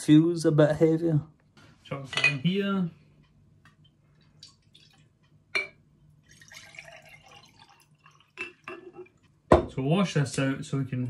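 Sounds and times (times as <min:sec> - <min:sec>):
liquid pouring into jar: 0:04.3 - 0:05.2, 0:06.2 - 0:09.2.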